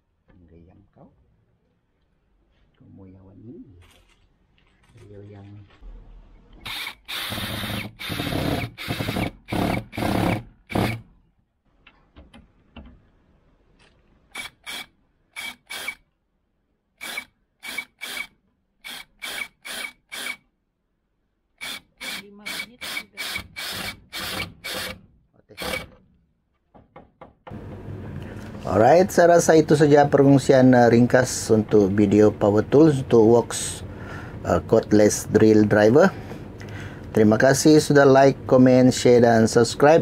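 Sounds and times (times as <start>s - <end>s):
cordless drill driving screws: 6.6s - 11.1s, 14.3s - 16.0s, 17.0s - 20.4s, 21.6s - 25.0s, 25.6s - 26.0s.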